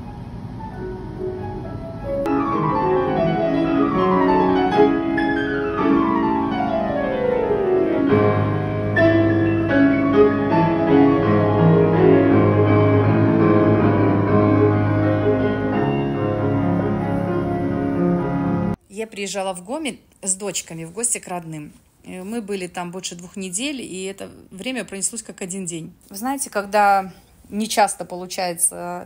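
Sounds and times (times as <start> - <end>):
piano music: 0.0 - 18.8.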